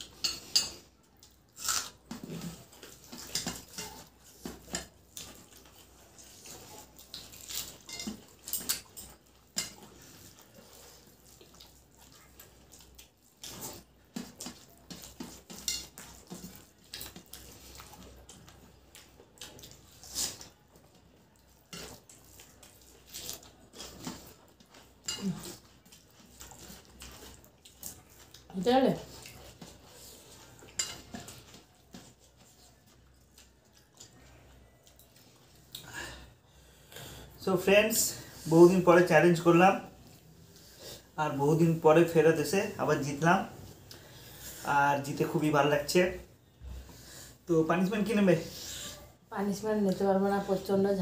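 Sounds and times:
chewing: 0:00.0 - 0:37.4.

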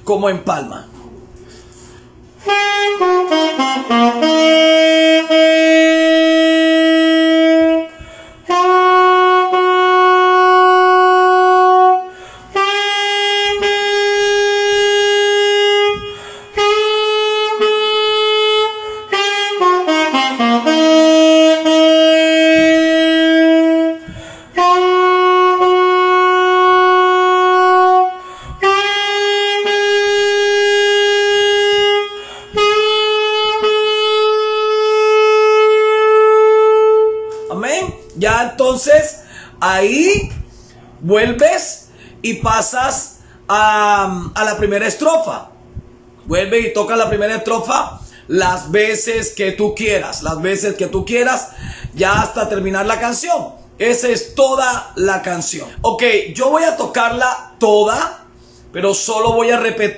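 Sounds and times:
player breathing: 0:01.4 - 0:02.2, 0:07.9 - 0:08.5, 0:12.1 - 0:12.6, 0:16.0 - 0:16.6, 0:24.0 - 0:24.6, 0:28.2 - 0:28.6, 0:32.1 - 0:32.6, 0:39.2 - 0:39.6, 0:41.9 - 0:42.2, 0:43.2 - 0:43.5, 0:47.9 - 0:48.3, 0:51.5 - 0:52.0, 0:58.3 - 0:58.7
alto saxophone solo: 0:02.3 - 0:39.4, 0:46.9 - 0:56.3.

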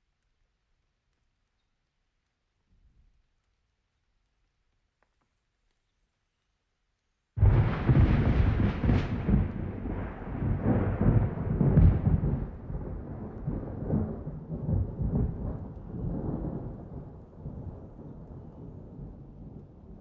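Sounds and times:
steady rain: 0:00.0 - 0:20.0
rolling thunder with cracks: 0:07.4 - 0:19.7.

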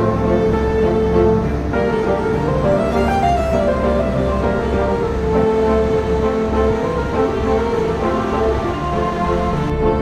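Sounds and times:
background music held notes: 0:00.0 - 0:10.0.

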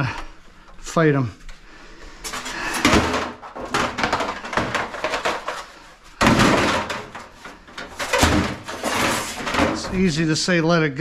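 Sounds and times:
scrap items clattering: 0:02.2 - 0:10.4
bang: 0:06.2 - 0:07.3, 0:08.0 - 0:10.0.

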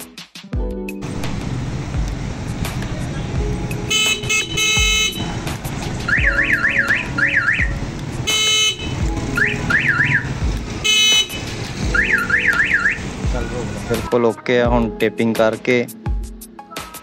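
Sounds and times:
electric horn honks: 0:03.9 - 0:05.4, 0:08.2 - 0:09.0, 0:10.8 - 0:12.6
siren yelp: 0:06.0 - 0:07.8, 0:09.3 - 0:10.4, 0:11.9 - 0:13.0.

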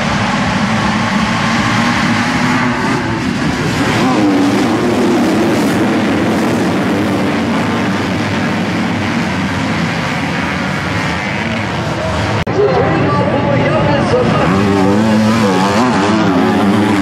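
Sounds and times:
motocross bikes revving: 0:00.0 - 0:17.0.

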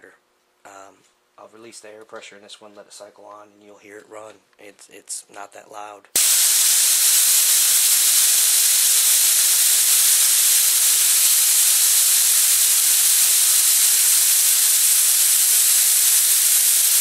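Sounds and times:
compressed air hissing: 0:06.2 - 0:17.0.

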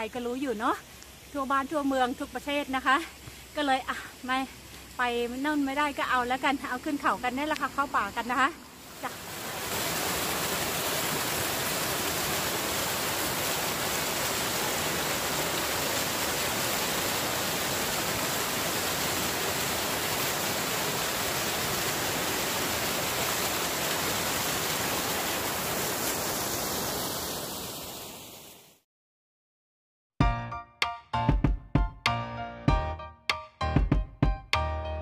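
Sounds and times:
water rushing down rocks: 0:08.8 - 0:28.6.

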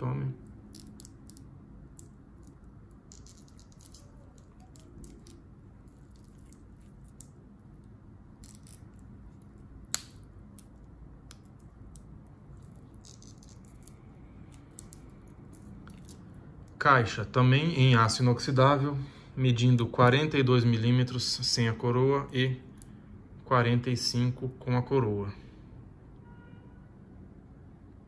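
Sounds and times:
watch bracelet clinking: 0:00.6 - 0:07.4, 0:08.4 - 0:09.5, 0:10.6 - 0:16.3.

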